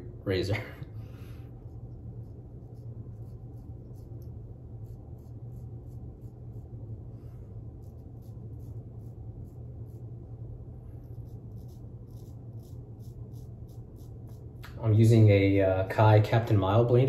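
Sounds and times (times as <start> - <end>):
steady low hum: 0.0 - 17.0
razor scraping stubble: 1.5 - 6.8, 7.7 - 10.2, 11.0 - 15.2.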